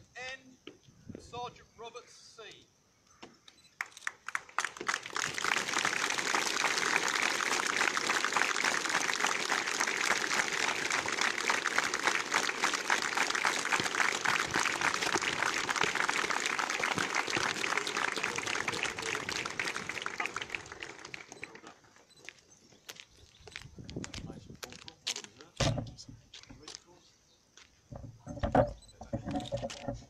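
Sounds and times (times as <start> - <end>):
crowd clapping: 3.8 - 21.8.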